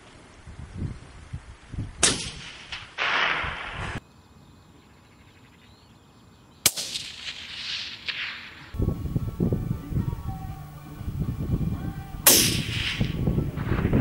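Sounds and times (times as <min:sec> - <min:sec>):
rifle shots: 0:02.0 - 0:04.0, 0:06.6 - 0:08.6, 0:12.3 - 0:13.2.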